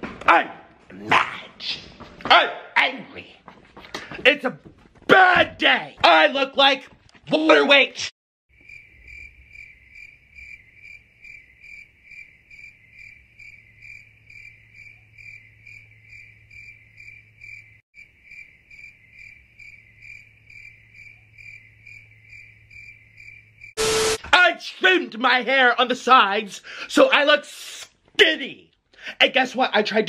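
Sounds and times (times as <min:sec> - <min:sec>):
cricket chirping: 0:08.5 - 0:23.8
loud burst of noise: 0:23.8 - 0:24.3.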